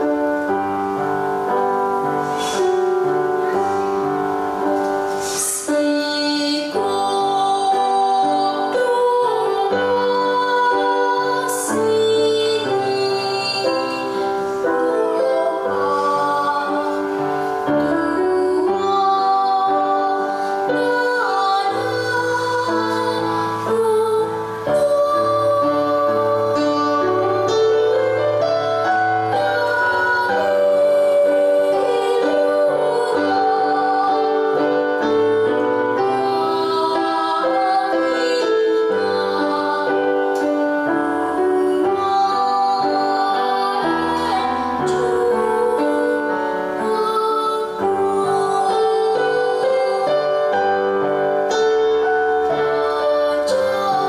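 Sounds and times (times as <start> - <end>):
girl singing: 0.0 - 54.0.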